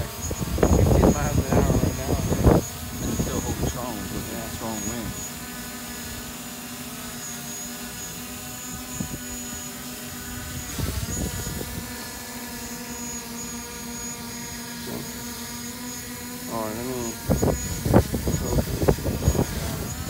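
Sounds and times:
wind rumbling on microphone: 0.0s - 5.2s, 8.7s - 9.6s, 10.2s - 12.0s, 17.1s - 20.0s
drone propellers buzzing: 0.0s - 20.0s.

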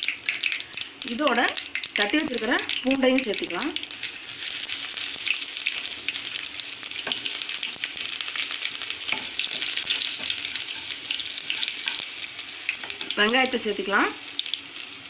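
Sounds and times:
garlic sizzling in hot oil: 0.0s - 15.0s
wooden spatula scraping pan: 9.1s - 12.0s.

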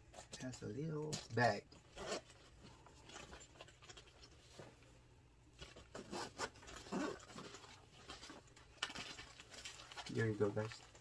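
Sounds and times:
bag handling rustle: 5.6s - 11.0s
zipper pulled open: 5.9s - 7.5s.

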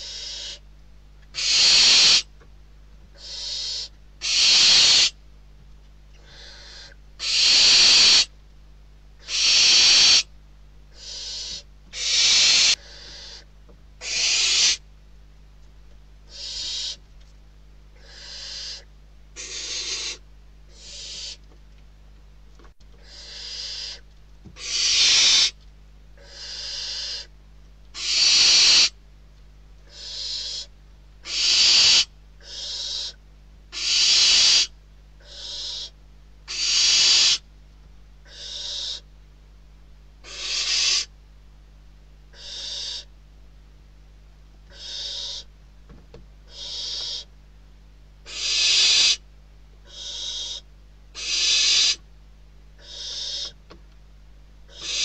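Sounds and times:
owl chicks hissing begging calls: 0.0s - 0.7s, 1.3s - 2.3s, 3.1s - 5.2s, 6.2s - 8.3s, 9.2s - 10.3s, 10.9s - 14.8s, 16.3s - 17.0s, 17.9s - 21.4s, 23.0s - 25.6s, 26.2s - 29.0s, 29.8s - 37.5s, 38.2s - 39.1s, 40.2s - 41.1s, 42.3s - 43.2s, 44.7s - 45.5s, 46.4s - 47.4s, 48.2s - 52.1s, 52.8s - 53.6s, 54.7s - 55.0s.

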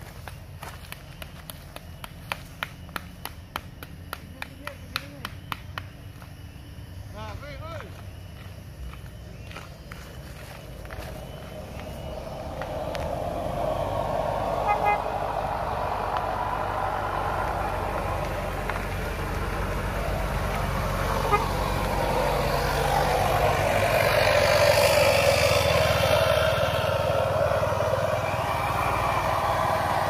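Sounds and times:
vehicles passing slowly: 0.0s - 30.0s
short horn toot: 14.6s - 15.0s.

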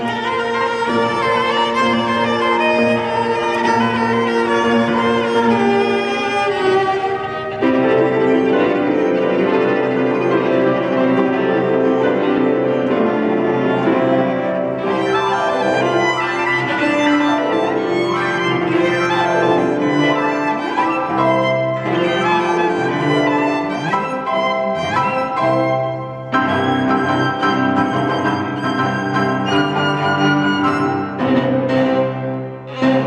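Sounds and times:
piano trio playing: 0.0s - 33.0s.

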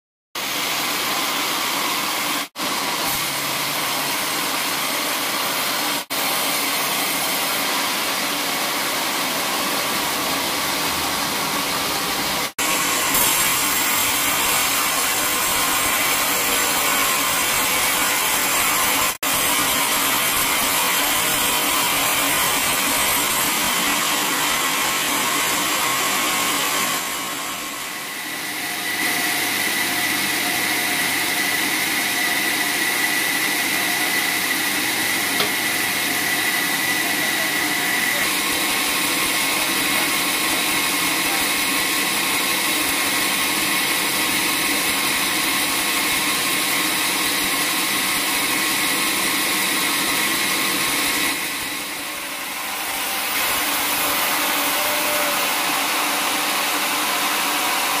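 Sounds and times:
band saw cutting logs: 0.4s - 58.0s.

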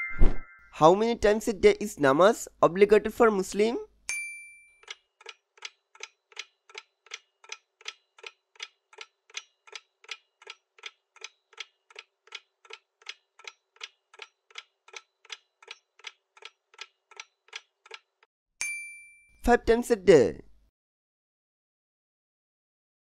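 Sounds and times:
clock ticking: 4.8s - 18.3s.

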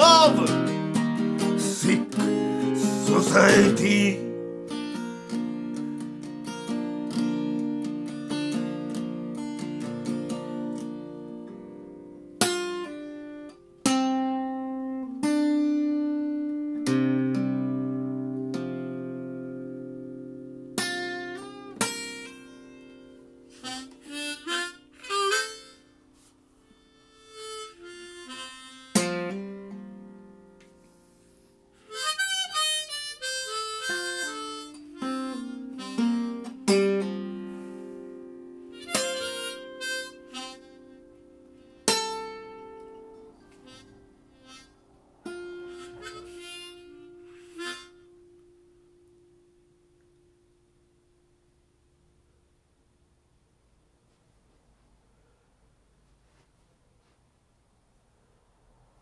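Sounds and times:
harmonica playing wavering phrases: 0.0s - 5.8s, 21.4s - 29.8s, 31.8s - 48.7s
strummed guitar chords: 0.0s - 50.2s.

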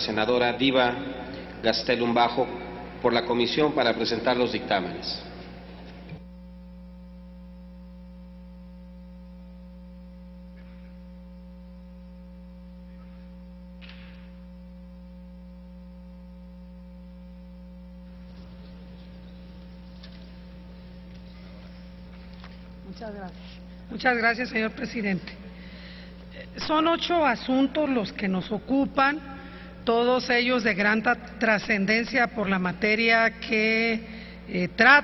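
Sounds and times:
electrical mains hum: 0.0s - 35.0s.

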